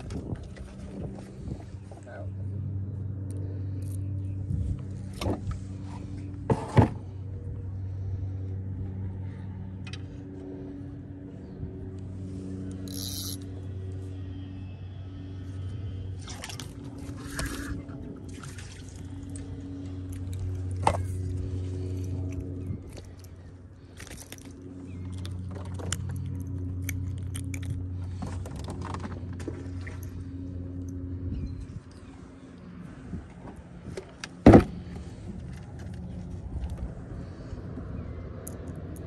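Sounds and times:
motor humming: 0:00.0 - 0:37.5
water sloshing against boat: 0:16.0 - 0:26.8
knocks and rattles of gear: 0:21.9 - 0:30.1.

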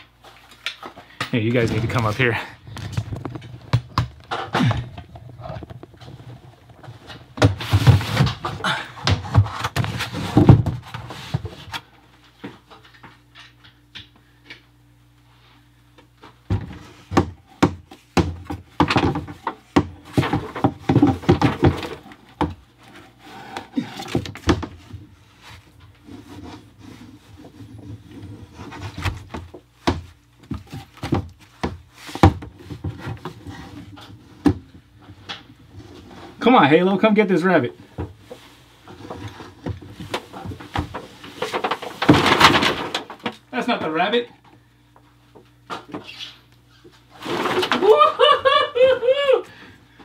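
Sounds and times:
knocking and rubbing on plastic rack: 0:02.9 - 0:11.8, 0:16.5 - 0:23.1, 0:24.1 - 0:36.4, 0:37.9 - 0:43.4.

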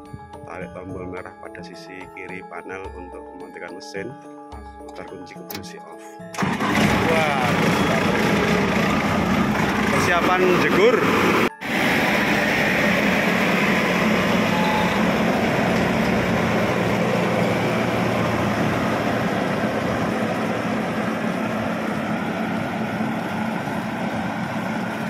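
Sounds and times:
combine harvester engine running: 0:06.3 - 0:25.0
machine tracks: 0:06.4 - 0:25.0.

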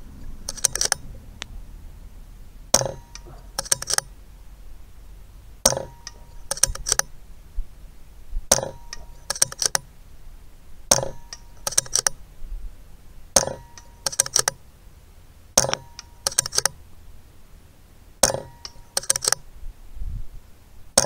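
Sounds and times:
rifle action metallic clicks: 0:00.5 - 0:01.0, 0:02.8 - 0:04.1, 0:05.6 - 0:07.1, 0:08.5 - 0:09.9, 0:10.9 - 0:12.2, 0:13.4 - 0:14.6, 0:15.6 - 0:16.8, 0:18.2 - 0:19.4.

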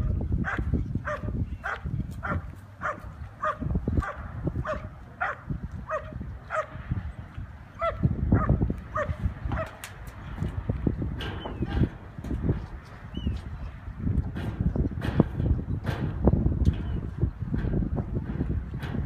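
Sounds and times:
dog barking: 0:00.4 - 0:06.8, 0:07.8 - 0:09.8.

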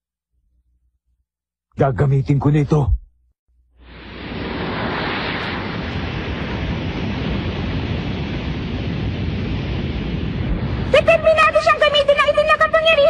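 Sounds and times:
rushing wind-like noise: 0:03.8 - 0:13.0.

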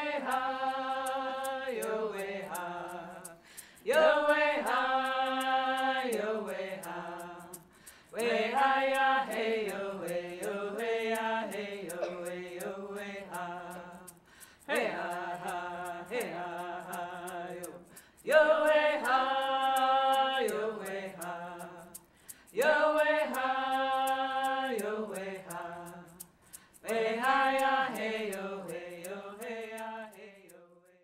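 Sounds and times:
steady beat of sharp clicks: 0:00.0 - 0:30.4
group singing in unison: 0:00.0 - 0:31.0.

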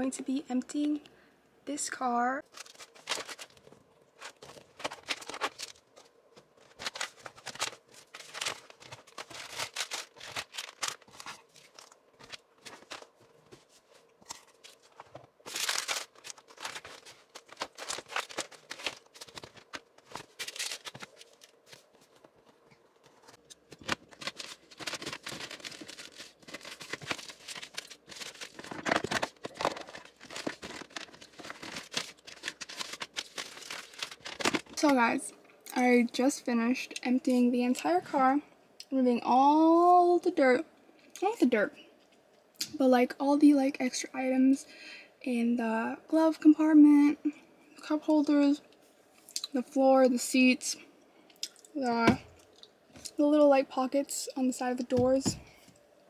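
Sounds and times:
papers and bags rustling: 0:02.4 - 0:35.2.

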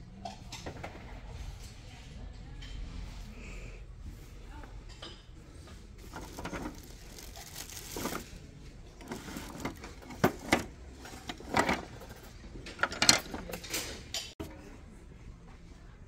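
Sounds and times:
wooden utensils clattering: 0:06.0 - 0:14.4.

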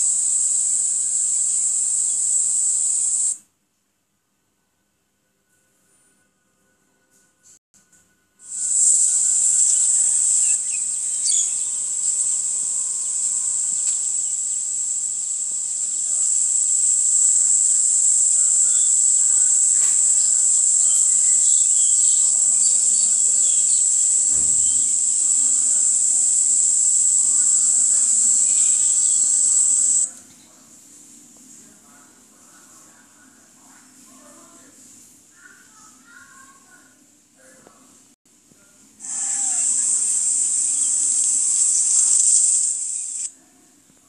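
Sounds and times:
faint chirps: 0:00.0 - 0:03.4, 0:05.2 - 0:30.6, 0:39.0 - 0:44.0
high-pitched insect buzzing: 0:00.0 - 0:03.4, 0:08.5 - 0:30.1, 0:39.0 - 0:43.3.

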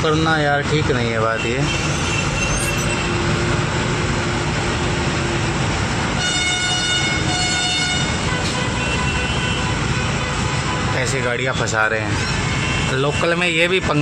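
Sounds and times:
truck engine rumbling: 0:00.0 - 0:14.0
vehicle horn hooting: 0:01.4 - 0:03.2, 0:06.2 - 0:10.9
loud horn blast: 0:01.4 - 0:03.4, 0:06.2 - 0:10.9.

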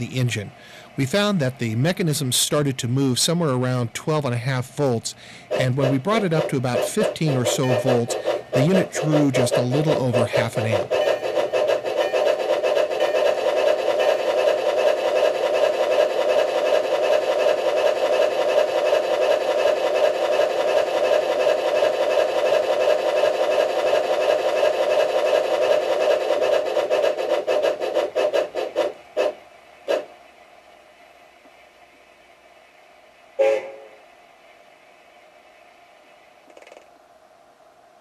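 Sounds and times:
model locomotive gear clatter: 0:01.0 - 0:30.1, 0:36.5 - 0:36.9.

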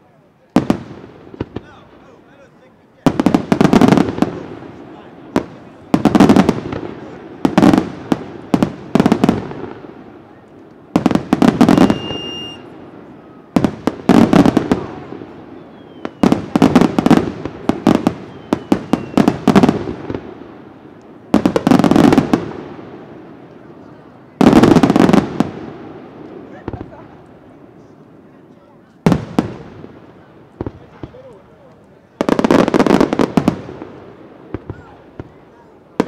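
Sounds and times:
fireworks bursting with sharp bangs: 0:00.2 - 0:36.0
firework whistle: 0:11.4 - 0:17.3, 0:17.9 - 0:19.8.

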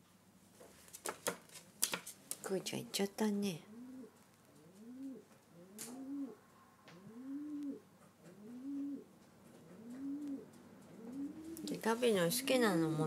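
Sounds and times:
pigeon cooing: 0:03.6 - 0:13.0.

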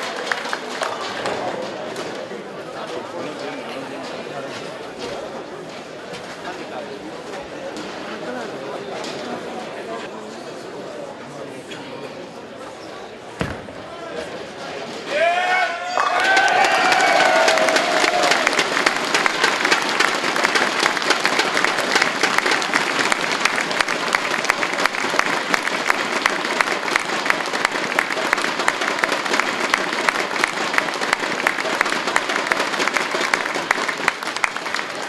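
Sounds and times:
audience applauding: 0:00.0 - 0:01.3, 0:15.9 - 0:35.0.

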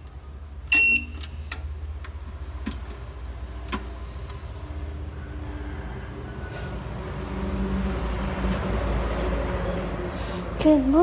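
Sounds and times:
ups beeping: 0:00.7 - 0:01.5.

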